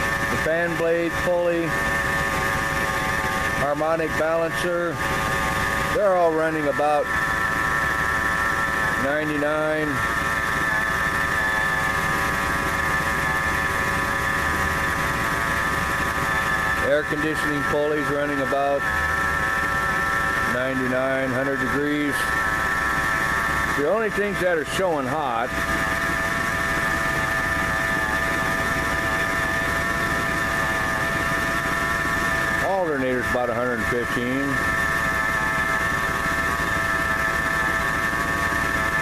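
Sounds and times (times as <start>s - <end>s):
high-pitched pulley whine: 0.0s - 39.0s.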